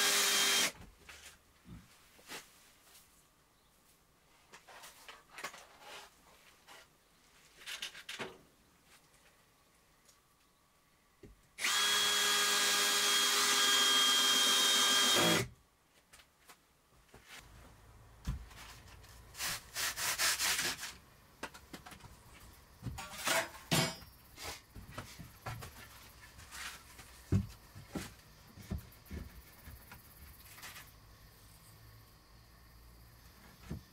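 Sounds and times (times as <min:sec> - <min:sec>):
power tool running: 0:00.0 - 0:00.7, 0:11.6 - 0:15.5.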